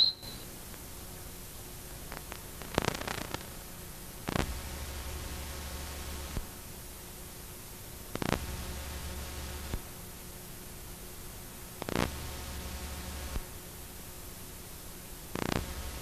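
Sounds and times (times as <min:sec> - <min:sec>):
low electrical hum: 0:00.0 - 0:16.0
static hiss: 0:00.0 - 0:16.0
crackle: 0:01.8 - 0:06.6, 0:08.1 - 0:09.9, 0:11.8 - 0:13.5, 0:15.3 - 0:16.0.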